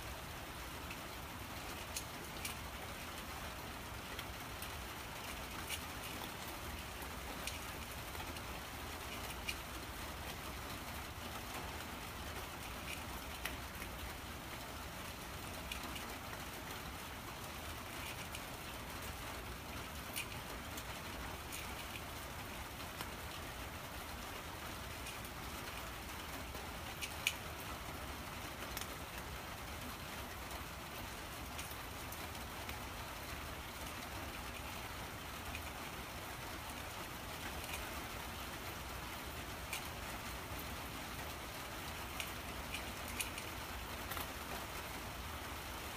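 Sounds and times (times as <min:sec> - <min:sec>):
steady hiss: 0:00.0 - 0:45.9
cat chewing wet food: 0:17.8 - 0:23.4.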